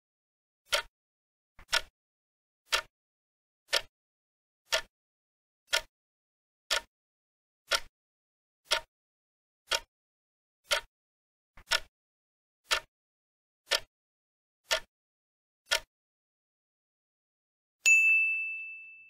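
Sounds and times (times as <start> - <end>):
clock-like ticks: 0.7 - 0.9, 1.6 - 1.9, 2.7 - 2.9, 3.7 - 3.9, 4.7 - 4.9, 5.7 - 5.9, 6.7 - 6.9, 7.7 - 7.9, 8.6 - 8.9, 9.7 - 9.9, 10.6 - 10.9, 11.6 - 11.9, 12.6 - 12.9, 13.7 - 13.9, 14.6 - 14.9, 15.6 - 15.9.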